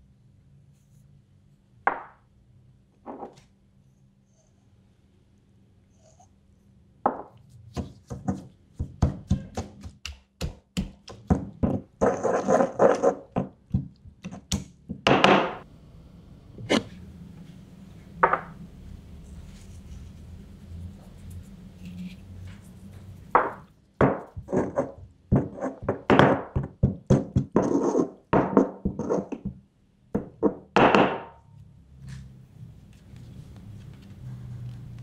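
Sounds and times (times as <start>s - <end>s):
stone pestle knocking in mortar: 7.8s - 12.2s, 23.4s - 27.7s
pestle grinding in stone mortar: 7.8s - 14.0s.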